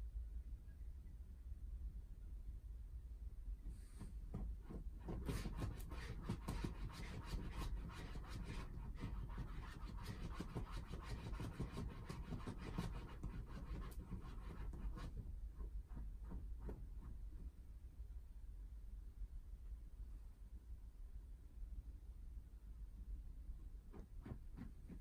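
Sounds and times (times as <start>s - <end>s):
pet rasping strokes: 3.7s - 17.2s.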